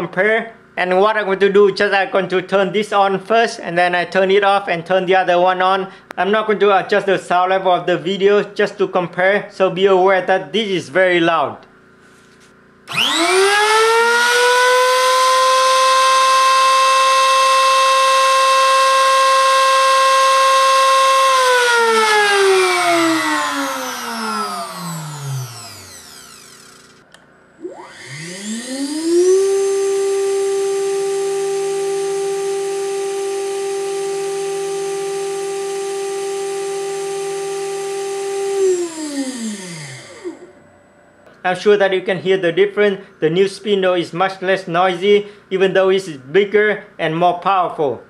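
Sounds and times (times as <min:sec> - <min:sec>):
router motor whining: 0:12.9 - 0:40.9.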